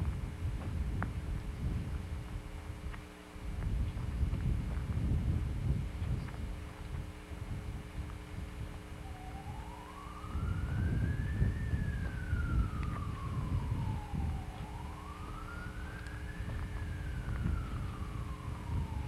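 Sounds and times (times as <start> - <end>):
low rumbling microphone noise: 0.0 - 19.0
emergency vehicle siren wailing: 8.8 - 19.0.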